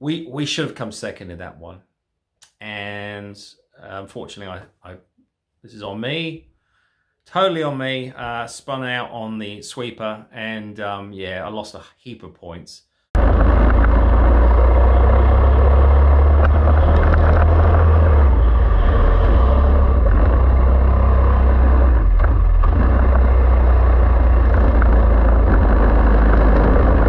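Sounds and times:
racing kart engine running hard: 0:13.2 - 0:27.0.

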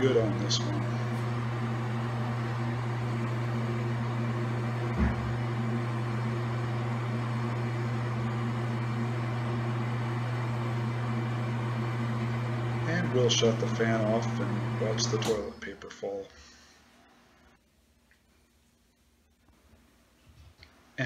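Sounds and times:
exhaust fan humming: 0:00.0 - 0:17.6
low thump: 0:04.9 - 0:05.4.

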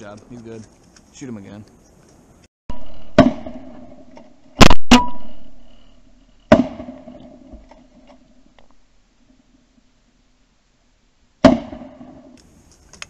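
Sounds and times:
shotgun blasts with echo: 0:02.7 - 0:05.8, 0:06.5 - 0:07.5, 0:11.4 - 0:12.4.

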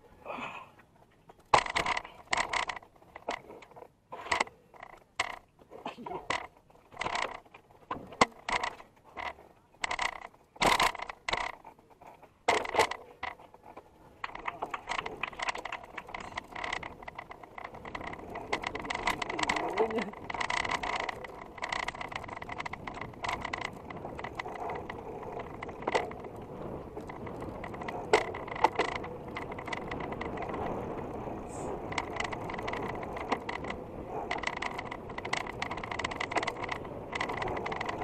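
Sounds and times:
bike clicks and clacks: 0:00.8 - 0:38.0
freewheel hub ticking: 0:06.3 - 0:11.8, 0:14.2 - 0:38.0.

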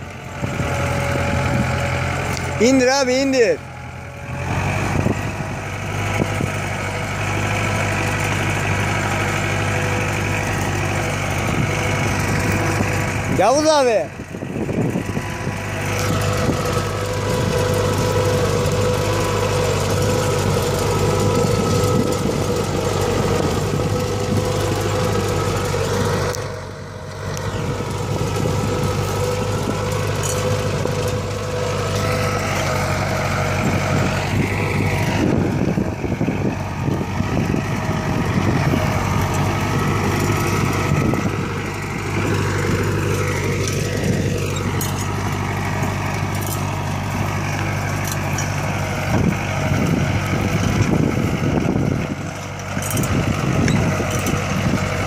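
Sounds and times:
tractor engine under load: 0:00.0 - 0:55.0.

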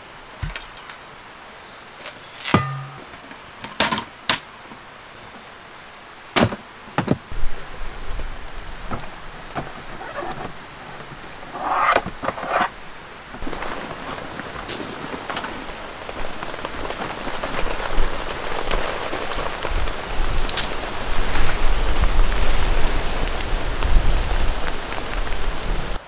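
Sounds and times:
items knocking on metal table: 0:02.5 - 0:03.2
faint insect chirps: 0:04.6 - 0:06.4.

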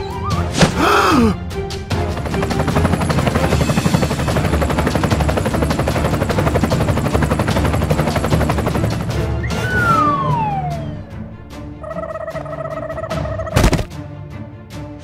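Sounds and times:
helicopter rotor chopping: 0:00.4 - 0:11.2.

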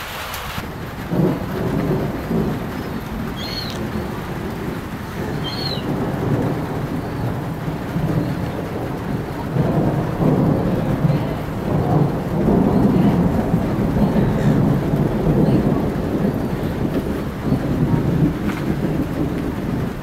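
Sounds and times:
thunder rumbling: 0:00.0 - 0:20.0.

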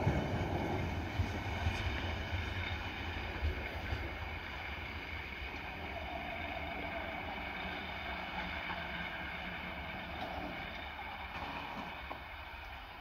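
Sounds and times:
wind buffeting microphone: 0:00.0 - 0:10.4
distant diesel engine rumble: 0:00.0 - 0:13.0.

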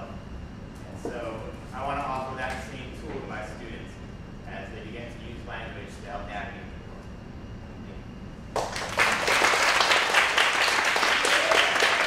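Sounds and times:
audience applauding: 0:08.6 - 0:12.0.

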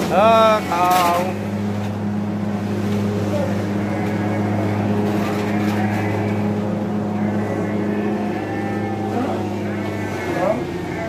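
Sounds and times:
cattle mooing: 0:00.0 - 0:11.0
engine drone: 0:00.0 - 0:11.0.

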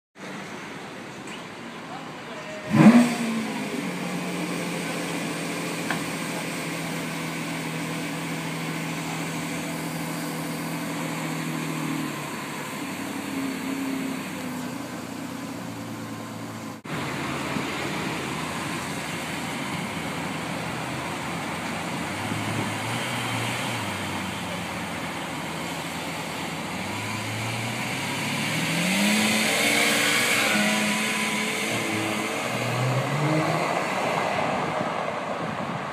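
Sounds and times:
car engine starting and idling: 0:00.2 - 0:35.9.

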